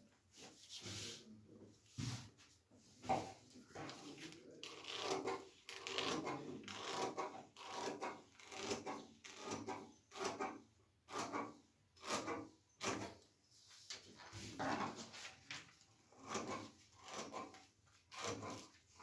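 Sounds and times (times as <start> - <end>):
scissors cutting paper: 4.6 - 13.2, 16.2 - 18.8.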